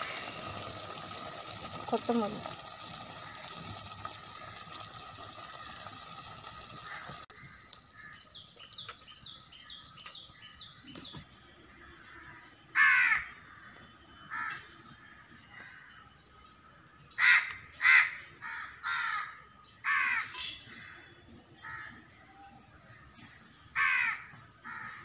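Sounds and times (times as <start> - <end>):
crow cawing: 2.9 - 4.0, 6.8 - 8.2, 12.0 - 13.6, 17.2 - 20.4, 23.8 - 25.0.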